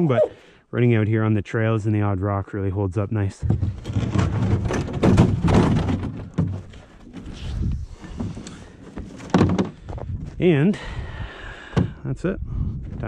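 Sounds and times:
plastic sled thunking and scraping: 3.4s - 10.2s.

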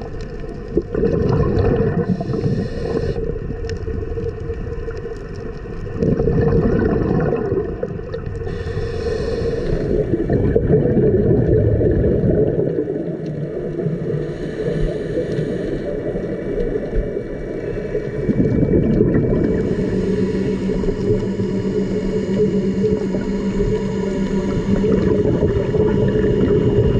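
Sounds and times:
gurgling exhaled bubbles underwater: 0.0s - 26.9s
hiss of diver inhaling: 2.0s - 3.3s, 8.4s - 10.3s, 14.0s - 16.5s, 19.4s - 25.2s.

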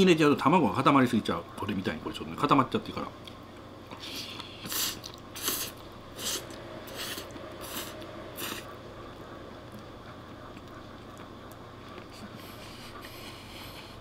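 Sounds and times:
person slurping spaghetti: 4.0s - 8.8s.

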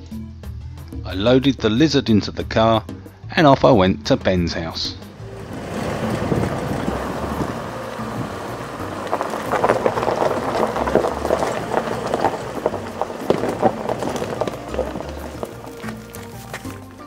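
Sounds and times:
road noise: 4.7s - 17.0s
car tyres crunching over gravel: 5.0s - 17.0s.

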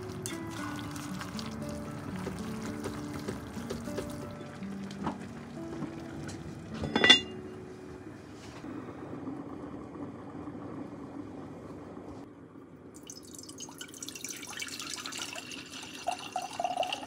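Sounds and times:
soft background music: 0.0s - 8.7s
cast-iron lid clinking: 6.7s - 7.5s.

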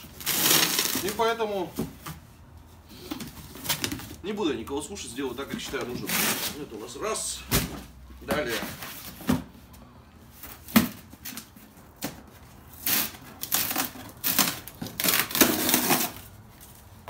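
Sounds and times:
cardboard rustling and scraping: 5.3s - 9.6s, 10.3s - 17.0s.

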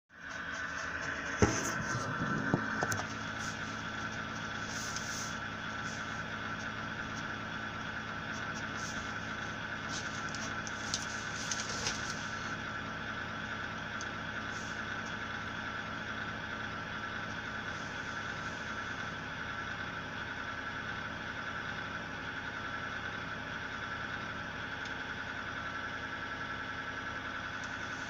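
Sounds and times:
power supply humming: 0.2s - 15.9s.

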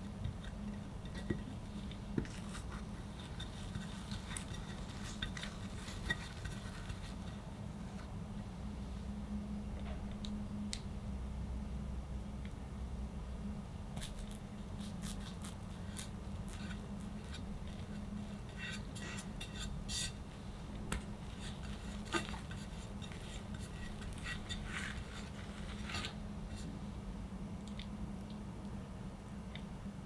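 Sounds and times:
spatula scraping cream: 0.0s - 8.0s, 14.0s - 20.2s, 21.0s - 26.8s
low steady hum: 0.0s - 30.0s.

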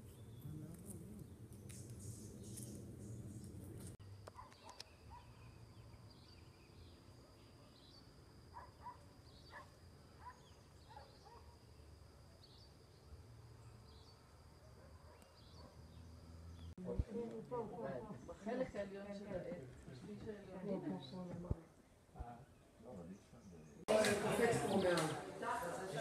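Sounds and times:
bird chirps: 0.0s - 11.4s.

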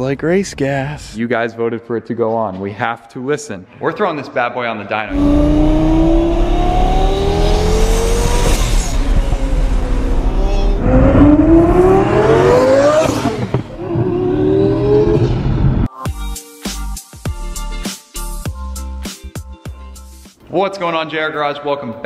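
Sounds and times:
sports car accelerating hard: 5.1s - 15.9s.

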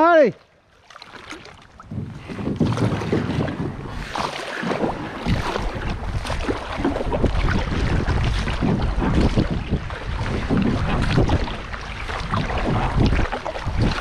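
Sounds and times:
river water rushing and splashing: 0.0s - 14.0s
wind rumbling on microphone: 1.2s - 14.0s.

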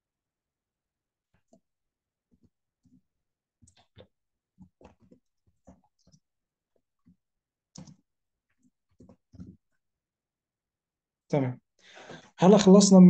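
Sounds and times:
faint keyboard typing: 2.3s - 9.8s.

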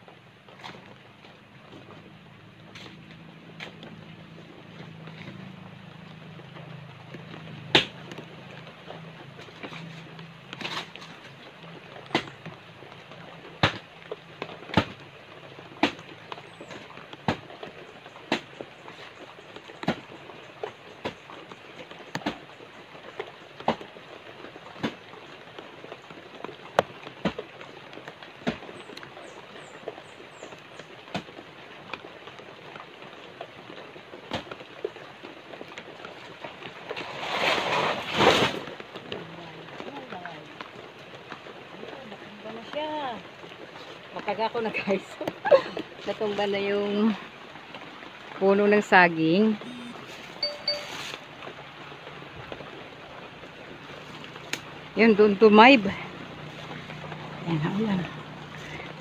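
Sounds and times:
blade chopping banana trunk: 7.7s - 7.9s.

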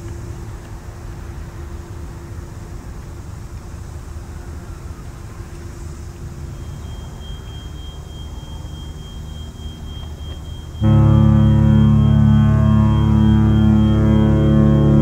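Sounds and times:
low rumble with hiss: 0.0s - 15.0s
faint high-pitched tone: 6.6s - 15.0s.

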